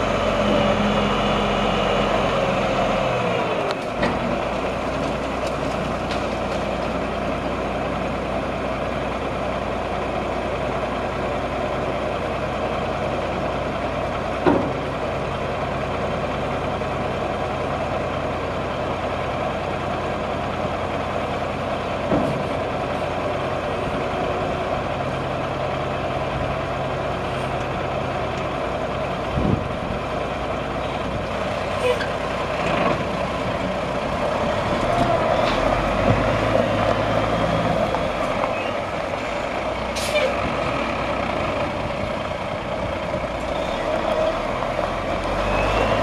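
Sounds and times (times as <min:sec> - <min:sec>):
diesel truck engine idling: 0:00.0 - 0:46.0.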